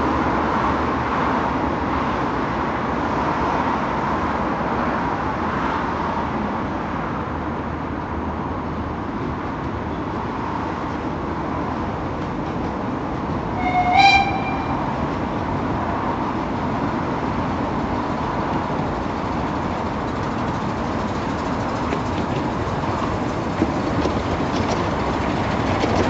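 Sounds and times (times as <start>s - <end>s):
train running: 0.0s - 26.0s
locomotive toot: 13.5s - 15.1s.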